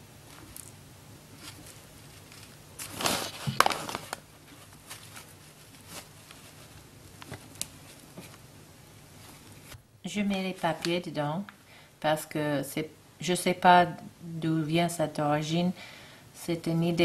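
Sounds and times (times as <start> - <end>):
paper rustling: 1.3 - 8.4.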